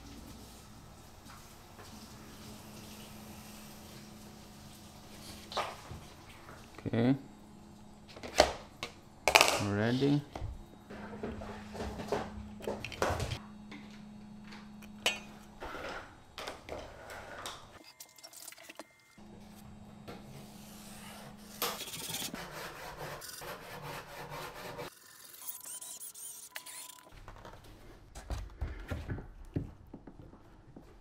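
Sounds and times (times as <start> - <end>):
marker scratching on wood: 25.5 - 27.0.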